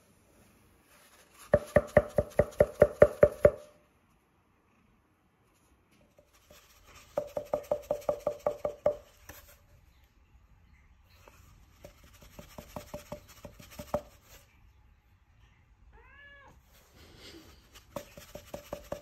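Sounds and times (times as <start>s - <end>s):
cardboard tube tapped: 1.4s - 3.7s, 7.0s - 9.6s, 11.8s - 14.4s, 17.8s - 19.0s.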